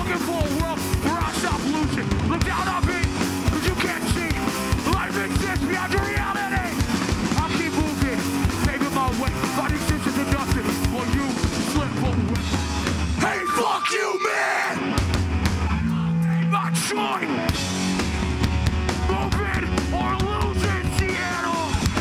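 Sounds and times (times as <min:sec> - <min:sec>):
punk band playing live: 0:00.0 - 0:14.0, 0:14.6 - 0:22.0
shouted vocals: 0:02.3 - 0:06.8, 0:13.2 - 0:14.9.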